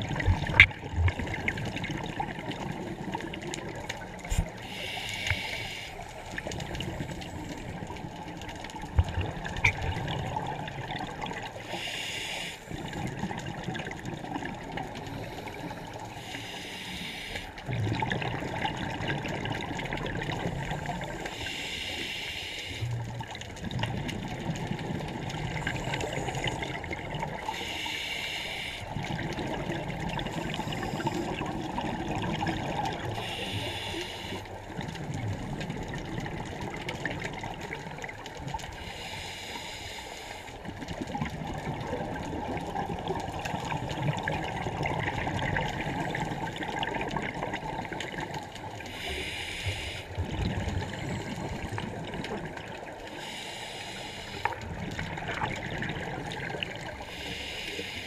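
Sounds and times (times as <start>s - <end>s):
exhaled bubbles gurgling: 0.0s - 58.0s
regulator hissing inhalations: 4.3s - 6.0s, 11.6s - 12.7s, 15.2s - 17.6s, 21.3s - 22.9s, 27.5s - 28.9s, 33.2s - 34.5s, 38.8s - 40.5s, 48.9s - 50.1s, 53.1s - 54.6s, 57.0s - 58.0s.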